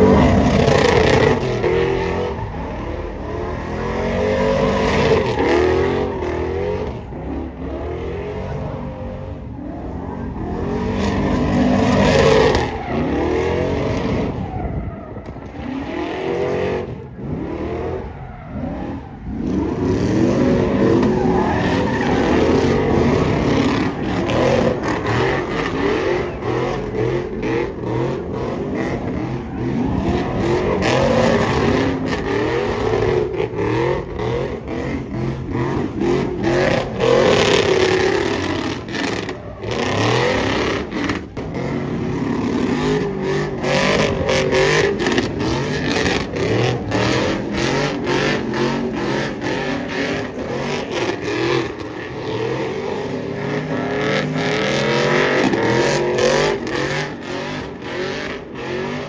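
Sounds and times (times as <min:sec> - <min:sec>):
truck engine revving hard: 0:00.0 - 0:59.0
tyres spinning on asphalt: 0:00.0 - 0:59.0.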